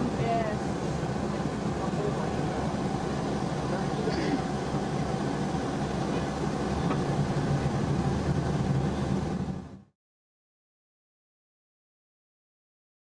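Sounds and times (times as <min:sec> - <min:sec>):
coach engine drone: 0:00.0 - 0:09.9
road noise: 0:00.0 - 0:09.9.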